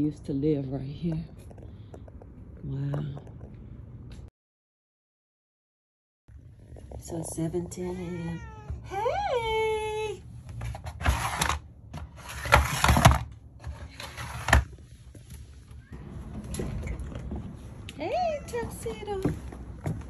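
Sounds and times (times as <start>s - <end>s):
objects rustling and clattering: 10.4s - 17.9s.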